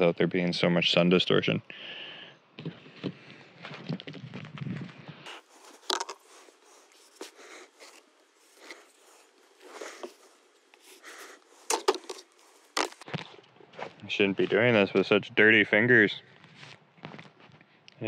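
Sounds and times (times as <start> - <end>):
rustling and handling: 2.6 - 15.1
marker scratching on cardboard: 5.3 - 13.0.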